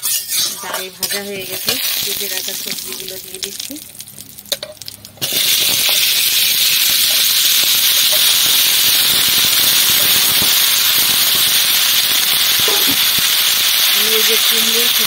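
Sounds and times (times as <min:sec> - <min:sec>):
vegetables sizzling in hot oil: 0:00.0 - 0:15.0
oil crackling and spitting: 0:02.8 - 0:14.0.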